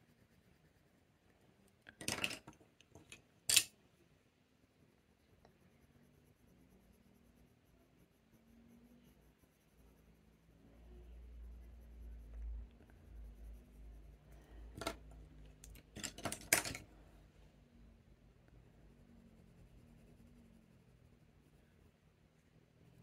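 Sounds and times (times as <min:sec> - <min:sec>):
pencils clicking: 0:01.9 - 0:03.7, 0:15.6 - 0:16.8.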